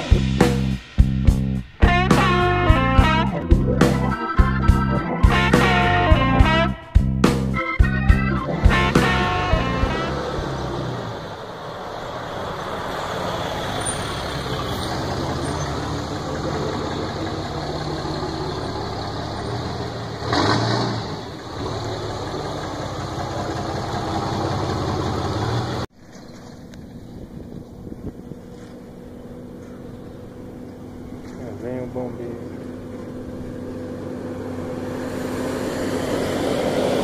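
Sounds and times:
pickup engine idling: 14.4s - 20.4s, 21.1s - 25.9s, 26.5s - 35.5s.

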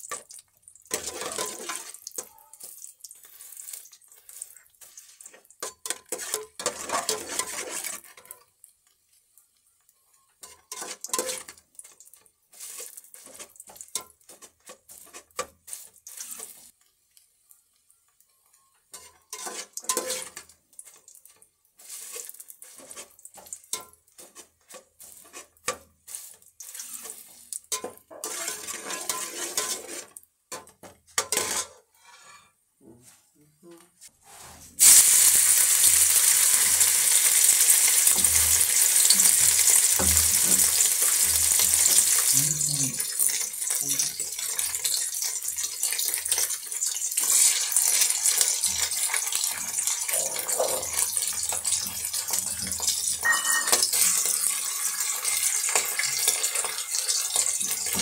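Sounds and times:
pots and utensils clattering: 0.9s - 2.5s, 5.2s - 8.5s, 10.4s - 16.7s, 18.9s - 32.5s, 35.8s - 58.0s.

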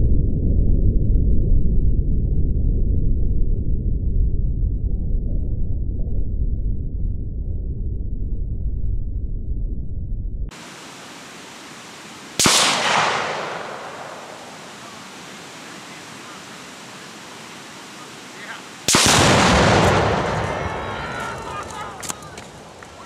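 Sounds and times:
large explosion: 12.4s - 14.8s, 18.9s - 21.5s
explosion rumbling: 12.4s - 15.2s, 18.9s - 23.0s
sharp echoing bang: 12.4s - 15.2s, 18.9s - 20.9s.

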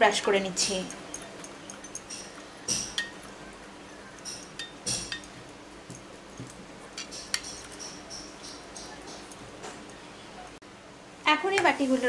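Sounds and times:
steel bowls clinking: 0.6s - 10.0s.

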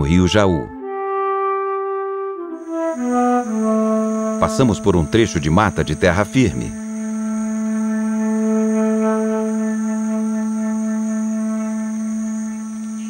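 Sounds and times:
low sustained music note: 2.4s - 13.0s
insect chorus: 2.6s - 13.0s.

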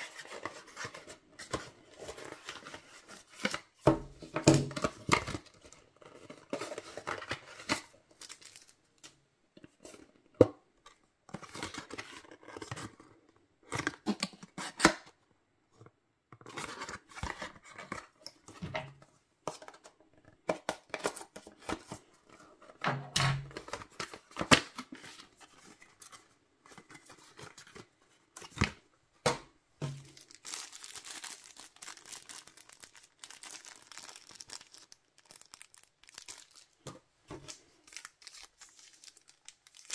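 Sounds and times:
plastic wrapper crinkling: 6.5s - 9.2s, 29.9s - 39.9s.

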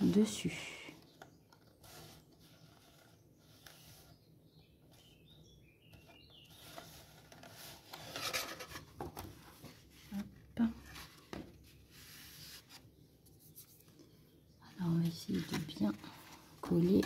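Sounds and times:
cardstock rubbing and rustling: 1.1s - 4.3s, 6.0s - 13.9s.

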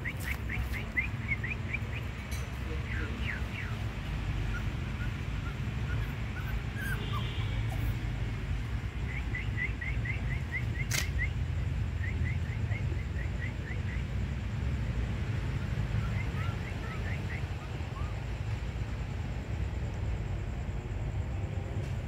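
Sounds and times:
sharp click: 10.8s - 11.2s.

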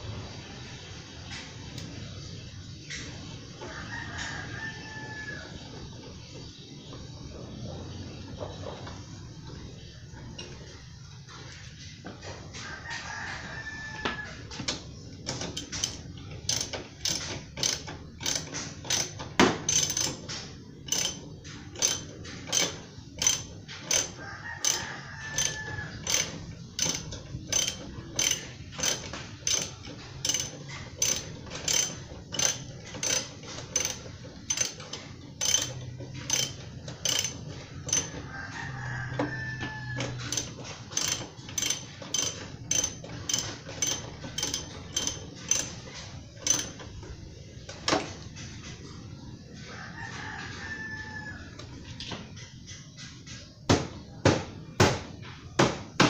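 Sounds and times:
distant rooster crowing: 3.6s - 5.8s, 12.2s - 14.7s, 21.9s - 29.7s, 35.4s - 45.7s, 49.5s - 52.4s
socket ratchet clicking: 15.5s - 20.2s, 20.9s - 21.2s, 21.8s - 38.2s, 40.1s - 45.8s, 46.4s - 46.8s.

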